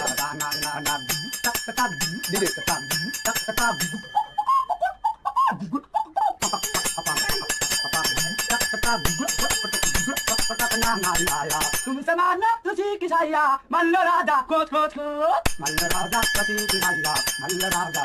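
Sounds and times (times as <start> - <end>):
man singing: 0.0 - 4.2, 6.4 - 18.0
metal percussion jingling: 0.0 - 5.0, 6.4 - 12.1, 15.5 - 18.0.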